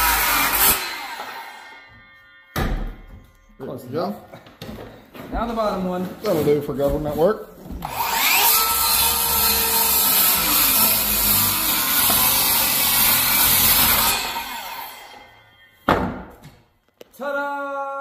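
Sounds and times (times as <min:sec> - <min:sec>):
circular saw cutting wood: 0:00.0 - 0:02.6, 0:07.8 - 0:15.8.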